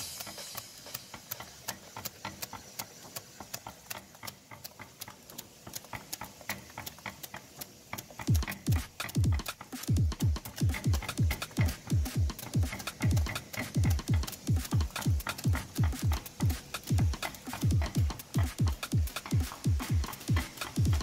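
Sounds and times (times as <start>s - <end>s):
machine clicking rapidly: 0.0s - 21.0s
music with deep kick drum: 8.2s - 21.0s.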